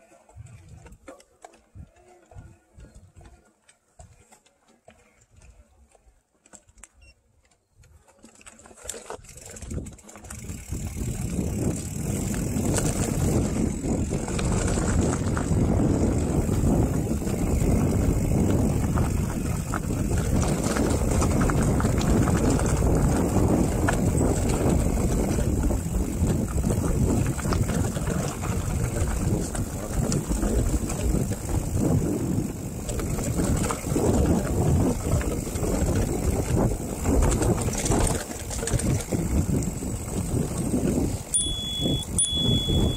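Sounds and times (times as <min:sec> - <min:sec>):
bike tyres rattling on trail: 0:00.0 - 0:42.9
wind rushing over microphone: 0:09.6 - 0:42.9.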